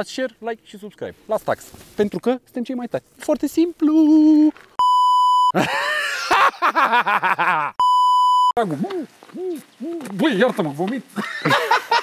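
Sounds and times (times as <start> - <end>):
censor bleeps: 4.8 - 5.6, 7.8 - 8.6.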